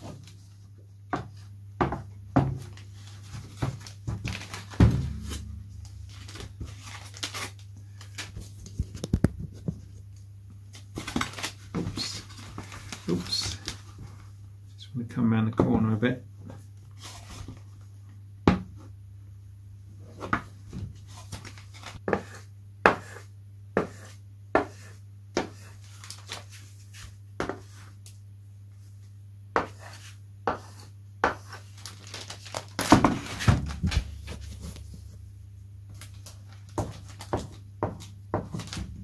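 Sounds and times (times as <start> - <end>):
knocking and rustling: 1.1 - 6.8.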